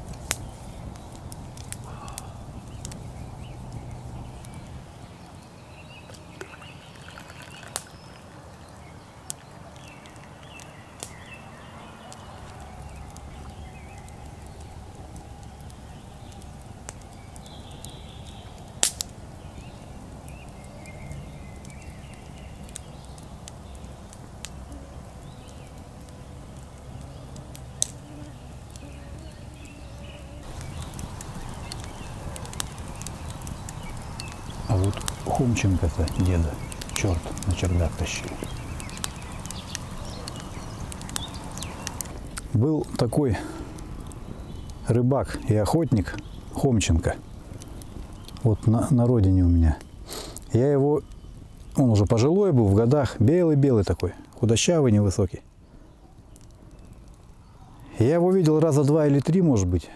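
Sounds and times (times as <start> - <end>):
wood popping: 0.0 - 11.3, 12.0 - 28.9, 29.5 - 54.6
campfire crackling: 0.0 - 59.9
faint bird calls: 0.4 - 18.7, 19.4 - 42.1.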